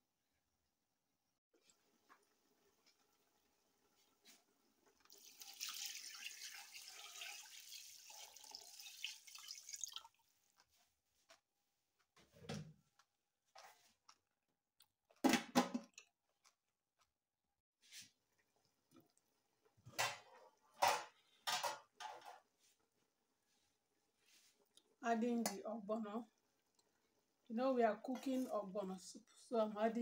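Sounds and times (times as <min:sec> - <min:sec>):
liquid pouring into metal pot: 0:05.0 - 0:10.2.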